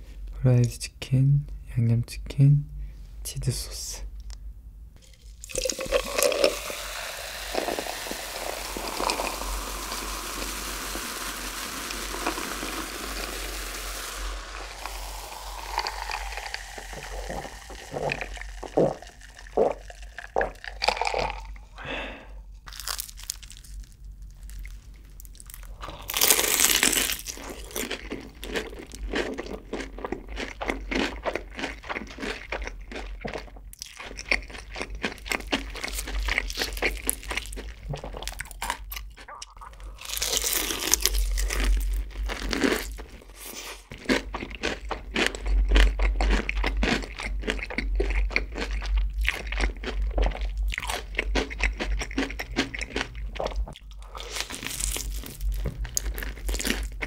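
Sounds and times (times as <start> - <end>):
gulping drink: 5.4 - 10.0, 14.5 - 21.6, 39.2 - 40.0
cola fizzing in a glass: 5.4 - 21.5
crunchy chewing: 22.6 - 57.0
crunchy bite into fried chicken: 22.7 - 33.1.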